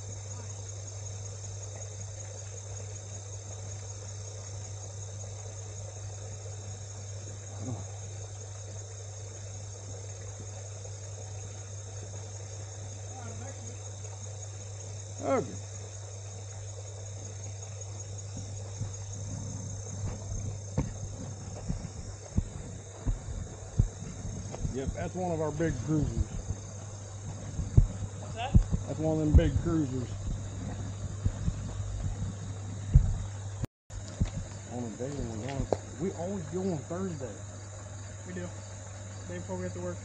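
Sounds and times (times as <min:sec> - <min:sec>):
constant low hum: 0:00.0 - 0:40.0
crickets chirping: 0:00.0 - 0:40.0
insects trilling: 0:00.0 - 0:40.0
footsteps through grass: 0:19.8 - 0:33.4.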